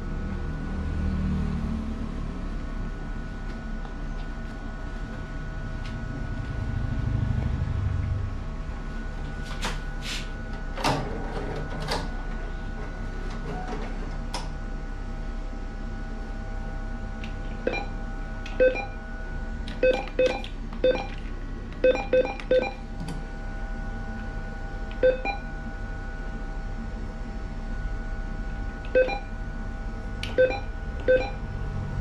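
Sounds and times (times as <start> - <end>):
steady machine hum: 0.0 - 32.0
keypad beeps: 17.6 - 19.0, 19.7 - 21.2, 21.8 - 22.8, 25.0 - 25.4, 28.9 - 29.3, 30.3 - 31.4.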